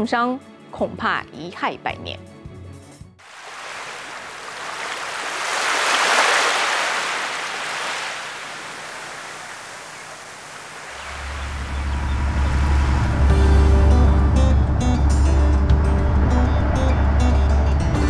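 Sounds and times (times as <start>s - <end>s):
rushing water: 3.2s - 13.4s
deep steady drone: 11.0s - 18.0s.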